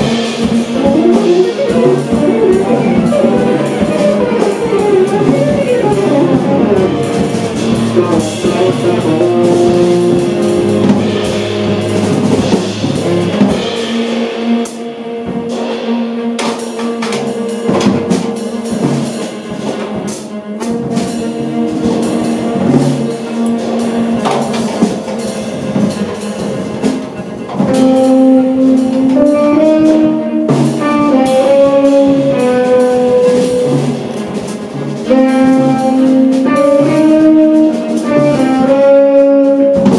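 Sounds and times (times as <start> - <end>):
tenor saxophone: 0.0 - 16.2, 20.6 - 39.9
cello: 0.0 - 39.9
drum kit cymbal strokes: 0.0 - 39.9
electric guitar: 0.8 - 9.8.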